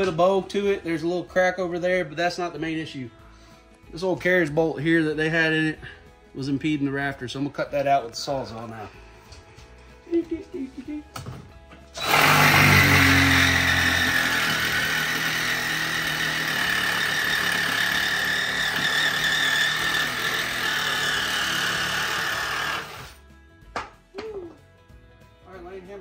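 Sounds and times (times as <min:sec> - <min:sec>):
reciprocating saw cutting steel bolt: 0:12.0 - 0:23.2.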